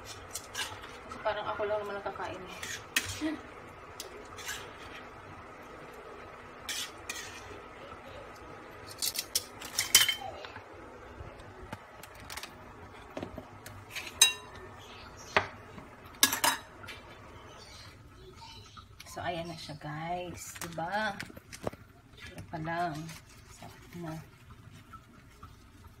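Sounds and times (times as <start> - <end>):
utensils and dishes clinking: 8.8 - 10.6, 13.8 - 14.7, 15.3 - 17.1.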